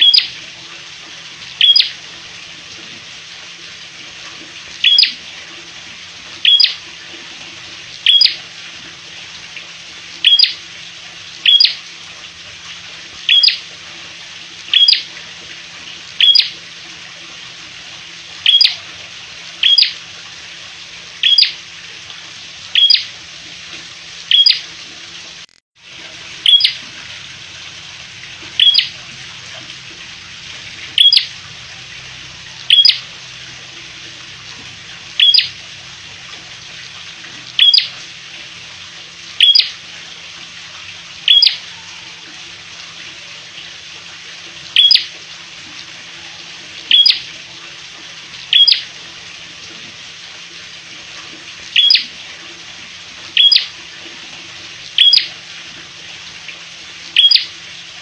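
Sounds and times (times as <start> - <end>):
bird chip call: 0.0 - 0.3, 1.6 - 1.9, 4.8 - 5.1, 6.4 - 6.8, 8.1 - 8.4, 10.2 - 10.6, 11.4 - 11.8, 13.3 - 13.6, 14.7 - 15.0, 16.2 - 16.5, 18.4 - 18.8, 19.6 - 20.0, 21.2 - 21.5, 22.8 - 23.1, 24.3 - 24.6, 26.4 - 26.8, 28.6 - 28.9, 32.7 - 33.0, 35.2 - 35.5, 37.6 - 37.9, 41.3 - 42.1, 46.9 - 47.2, 48.5 - 48.8, 51.8 - 52.0, 53.4 - 53.7, 55.0 - 55.3, 57.2 - 57.5.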